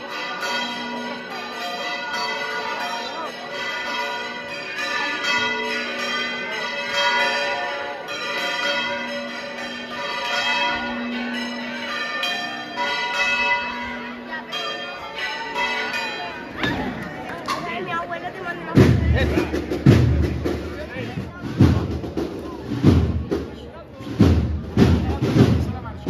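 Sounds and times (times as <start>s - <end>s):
church bells pealing: 0.0s - 18.8s.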